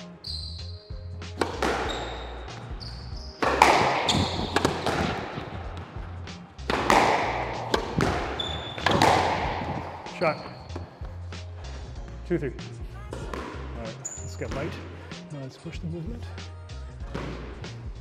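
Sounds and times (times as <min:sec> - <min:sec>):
background music with bass: 0:00.0 - 0:18.0
squash ball cracking off rackets: 0:01.3 - 0:11.0, 0:13.1 - 0:13.8, 0:17.1 - 0:17.6
ball thudding against walls: 0:01.4 - 0:02.8, 0:03.4 - 0:11.0.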